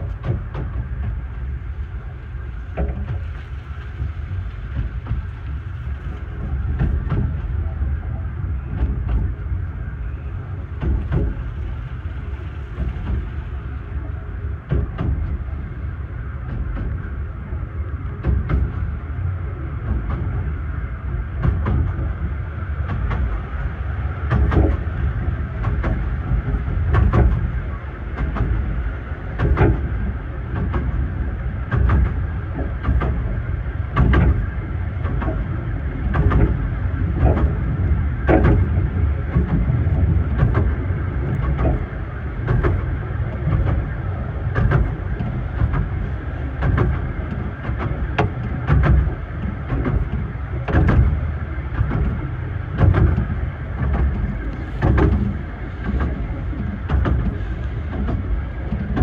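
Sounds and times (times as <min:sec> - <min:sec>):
train carriage rumble: 0:00.0 - 0:59.0
knocks and rattles: 0:37.2 - 0:59.0.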